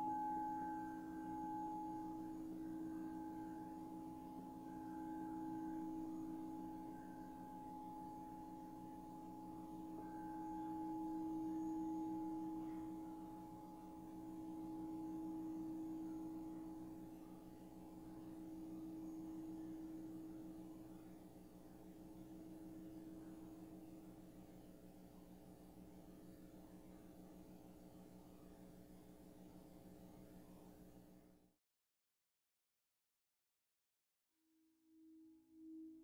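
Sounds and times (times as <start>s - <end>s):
singing bowls ringing: 0.0s - 24.2s.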